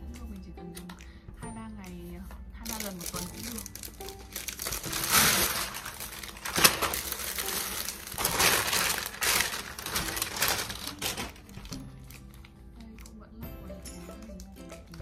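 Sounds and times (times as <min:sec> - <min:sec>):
plastic packaging crinkling: 0:02.6 - 0:13.2, 0:14.0 - 0:15.0.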